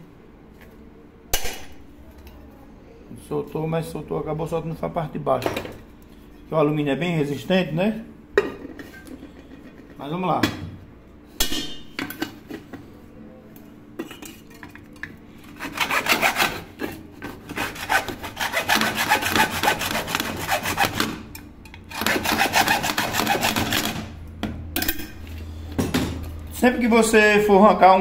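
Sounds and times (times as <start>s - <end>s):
hand saw cutting metal: 15.5s - 21.2s, 21.9s - 24.1s.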